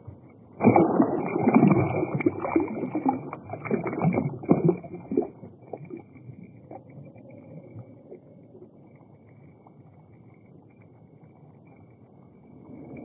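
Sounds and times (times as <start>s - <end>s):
fish splashing in water: 0.6s - 5.3s.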